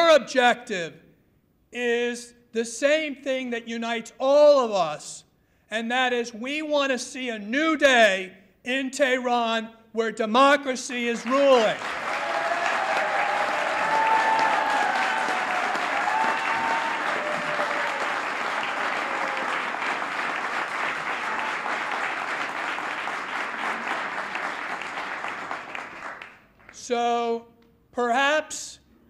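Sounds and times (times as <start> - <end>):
audience applauding: 11.5 - 26.8.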